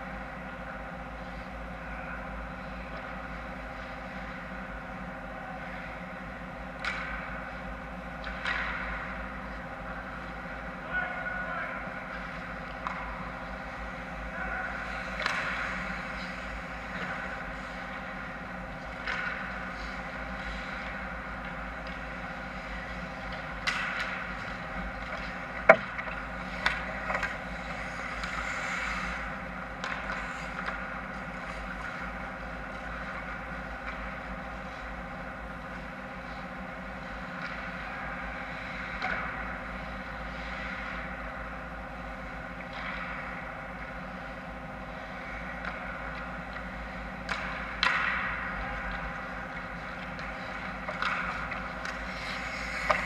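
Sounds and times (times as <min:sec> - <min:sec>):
steady background hum: 0:00.0 - 0:53.0
hockey sticks and puck clacking: 0:06.8 - 0:07.6, 0:08.2 - 0:09.2, 0:12.1 - 0:13.9, 0:14.7 - 0:35.0, 0:37.0 - 0:41.4, 0:42.3 - 0:44.0, 0:44.9 - 0:53.0
skates scraping ice: 0:18.8 - 0:33.1, 0:49.8 - 0:53.0.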